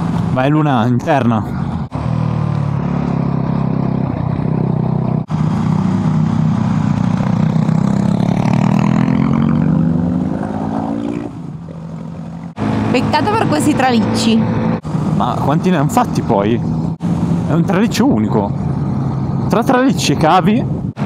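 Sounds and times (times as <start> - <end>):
motorcycle engine running: 1.6 - 15.6
wind noise: 13.7 - 21.0.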